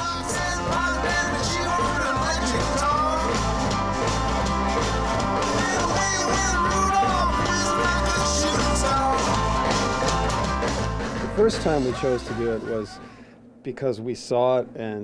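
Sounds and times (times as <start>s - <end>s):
person singing: 0.0s - 3.4s, 5.4s - 10.4s
electric guitars: 0.0s - 12.7s
bass guitar: 0.0s - 13.0s
drums: 0.0s - 13.2s.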